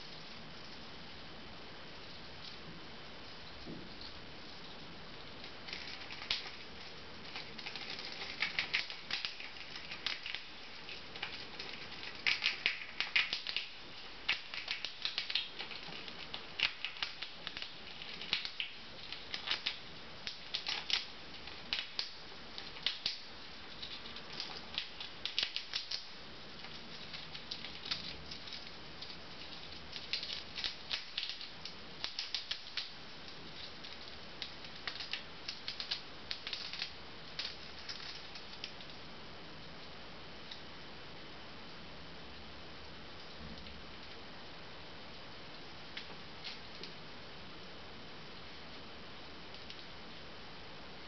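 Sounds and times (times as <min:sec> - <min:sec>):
chipmunk cracking peanut shell: 0:05.4 - 0:38.9.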